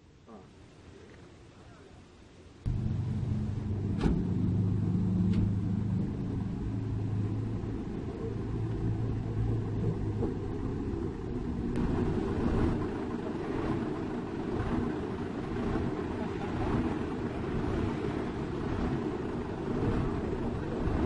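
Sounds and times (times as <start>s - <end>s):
diesel truck engine idling: 2.7s - 12.3s.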